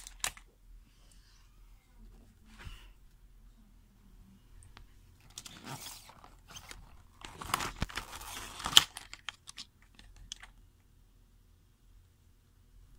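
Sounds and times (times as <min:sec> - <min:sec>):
rustling and crinkling: 0:04.7 - 0:10.5.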